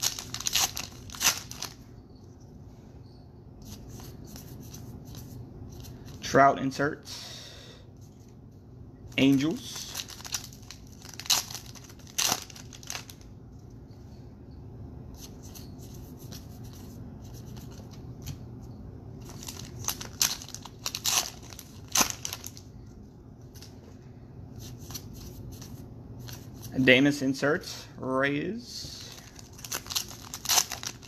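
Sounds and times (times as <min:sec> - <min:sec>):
cards and wrappers flicking rustling: 0:00.0 - 0:01.8, 0:09.2 - 0:13.3, 0:19.2 - 0:22.7, 0:29.0 - 0:31.0
steady low hum: 0:00.0 - 0:31.0.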